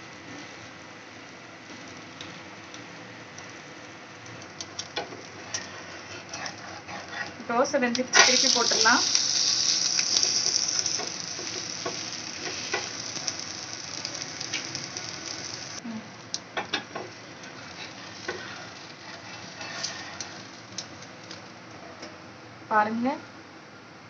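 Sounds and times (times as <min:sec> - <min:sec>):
batter sizzling on hot pan: 0:00.0 - 0:15.8, 0:16.5 - 0:21.5
spatula scraping pan: 0:05.0 - 0:07.3, 0:17.4 - 0:20.4.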